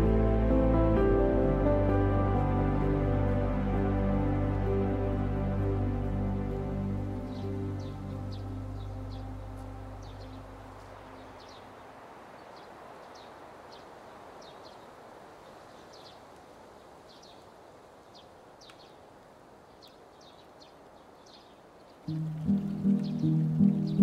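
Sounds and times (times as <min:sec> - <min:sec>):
music: 0:00.0 - 0:11.4, 0:22.1 - 0:24.0
soft steady hiss: 0:00.0 - 0:24.0
small birds chirping: 0:06.3 - 0:24.0.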